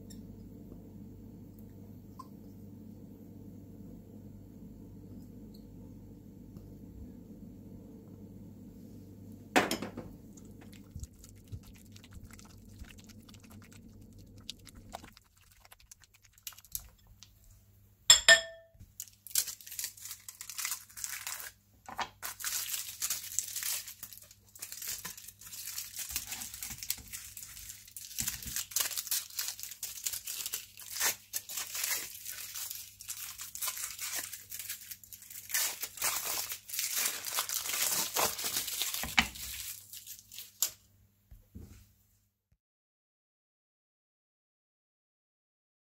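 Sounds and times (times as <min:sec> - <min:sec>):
faint steady hum: 0:00.0 - 0:41.4
crinkling and rustling: 0:10.3 - 0:17.5, 0:19.0 - 0:40.8.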